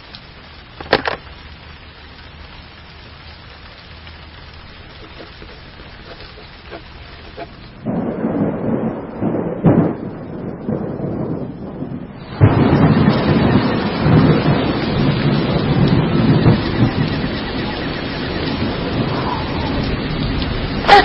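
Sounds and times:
rain hissing: 0.0s - 21.0s
thunder rumbling: 0.0s - 21.0s
sharp thunder crack: 7.8s - 21.0s.

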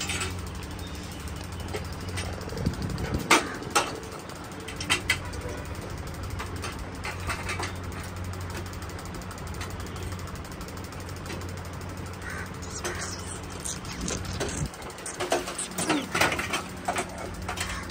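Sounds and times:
steady low hum: 12.2s - 17.9s.

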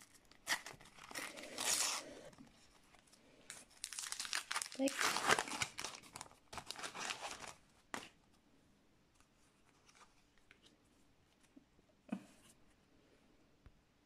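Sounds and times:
foil packet crinkling: 0.0s - 2.4s, 3.0s - 8.1s.

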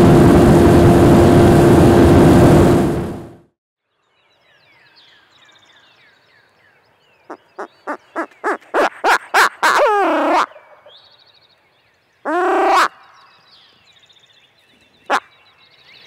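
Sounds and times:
faint birdsong: 3.8s - 16.0s
owl hooting: 8.2s - 11.0s, 12.3s - 13.0s.

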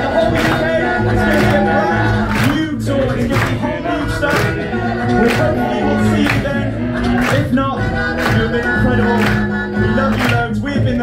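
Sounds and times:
a cappella group singing: 0.0s - 11.0s
beatboxing: 0.0s - 11.0s.

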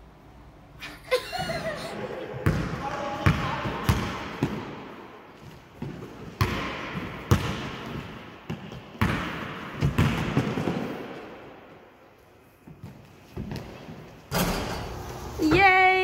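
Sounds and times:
basketball bouncing on wooden floor: 2.4s - 4.6s, 5.8s - 10.8s.

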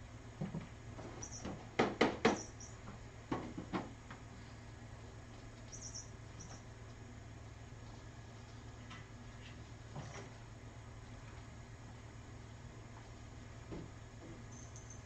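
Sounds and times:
steady low hum: 0.0s - 15.0s
faint high squeaks: 1.2s - 1.5s
cats tapping and knocking: 3.3s - 4.0s.

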